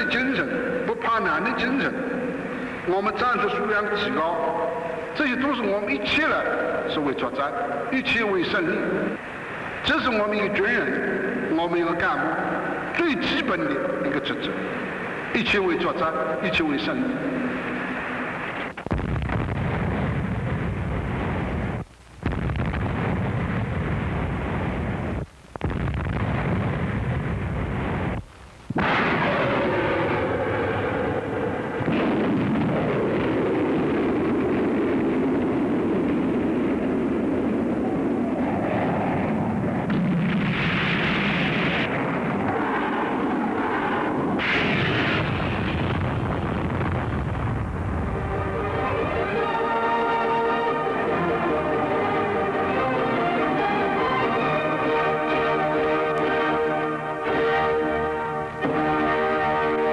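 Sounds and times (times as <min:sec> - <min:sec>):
explosions: 0:16.5 - 0:51.6
artillery fire: 0:18.4 - 0:48.8
gunfire: 0:18.8 - 0:31.2, 0:31.8 - 0:36.0, 0:39.9 - 0:47.4.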